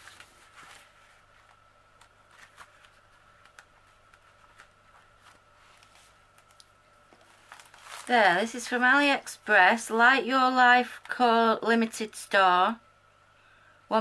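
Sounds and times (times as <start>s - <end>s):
paper and canvas rustling: 0.0s - 8.8s
faint hum: 0.0s - 14.0s.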